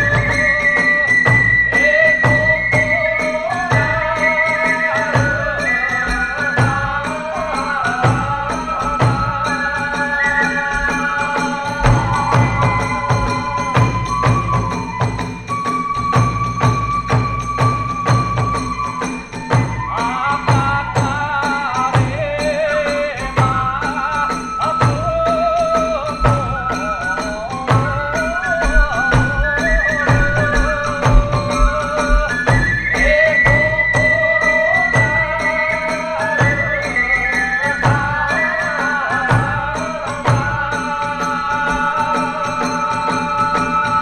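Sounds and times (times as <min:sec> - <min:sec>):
bamboo flute melody: 0:00.0 - 0:40.8
taiko drum strokes: 0:27.7 - 0:33.2.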